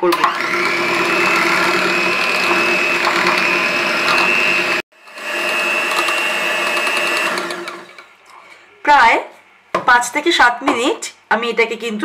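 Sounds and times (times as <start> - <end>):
electric hand mixer whining: 0.0 - 8.1.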